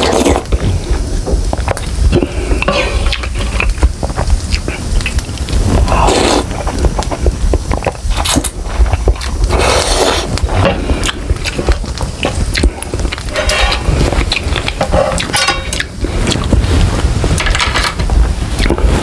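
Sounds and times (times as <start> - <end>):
slurping noodles: 0.0 - 0.9, 4.5 - 16.6
chewing: 0.0 - 16.7, 18.6 - 18.9
utensils clicking in a pan: 13.2 - 16.0.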